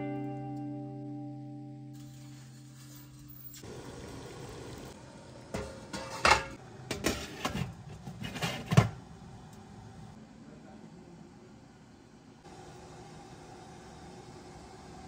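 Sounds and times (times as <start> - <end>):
cookware knocking and clinking: 5.5 - 9.0.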